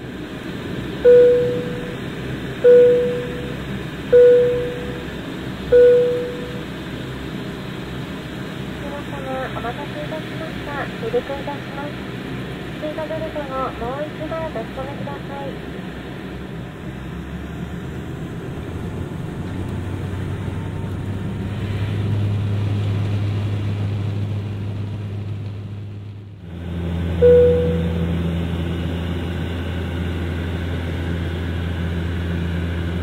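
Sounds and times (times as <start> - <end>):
turboprop engines droning: 0.0 - 33.0
short cabin chime: 1.0 - 2.0, 2.6 - 5.1, 5.7 - 6.6, 27.2 - 28.2.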